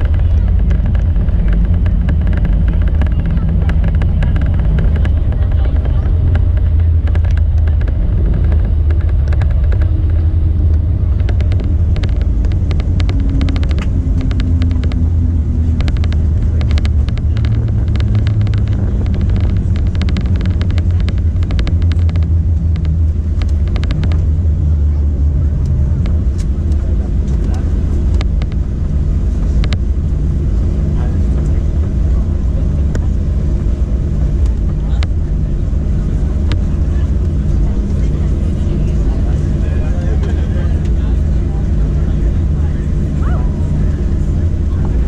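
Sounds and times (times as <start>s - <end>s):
rattling clicks: 0.0s - 24.3s
low rumble of wheels and engines: 0.0s - 45.0s.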